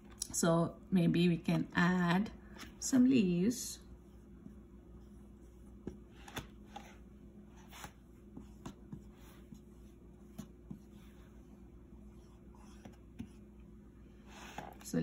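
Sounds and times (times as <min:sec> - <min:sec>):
low steady hum: 0:00.0 - 0:15.0
marker scratching on whiteboard: 0:05.0 - 0:13.6.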